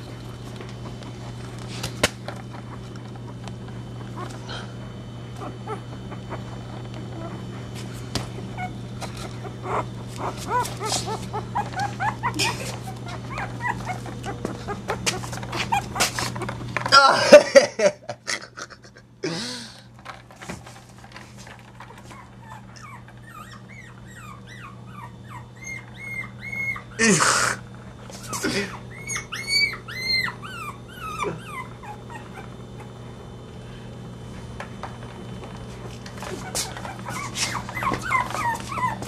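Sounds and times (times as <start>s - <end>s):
puppies whimpering and yipping: 4.0s - 4.5s, 5.3s - 16.6s, 21.8s - 27.0s, 28.1s - 33.0s, 36.2s - 39.0s.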